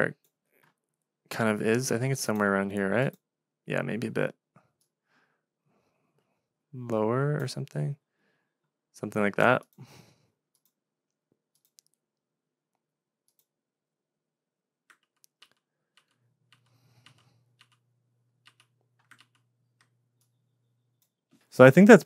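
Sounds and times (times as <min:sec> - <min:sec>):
computer keyboard and mouse clicks: 0:14.9 - 0:17.8, 0:18.4 - 0:20.4.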